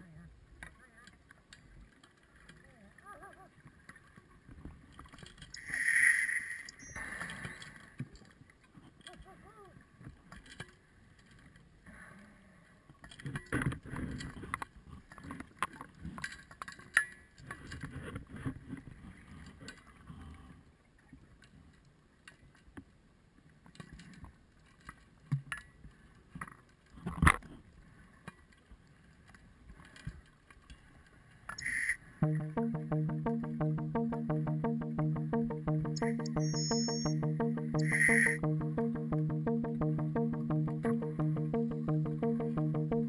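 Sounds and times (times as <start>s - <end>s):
knocks and clicks: 32.2s - 43.0s
music: 32.2s - 43.0s.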